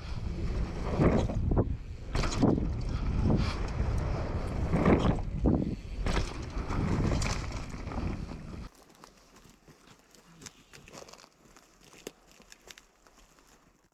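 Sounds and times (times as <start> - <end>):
wind buffeting microphone: 0.0 - 8.7
bike tyres rumbling on dirt: 0.0 - 13.9.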